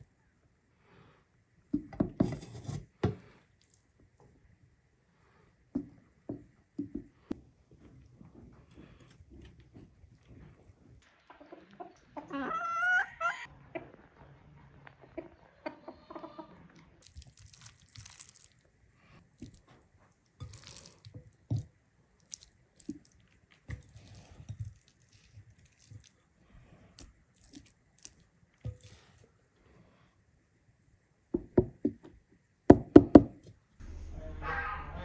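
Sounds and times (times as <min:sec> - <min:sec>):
hands squishing wet food: 0:06.8 - 0:12.2, 0:16.7 - 0:29.3.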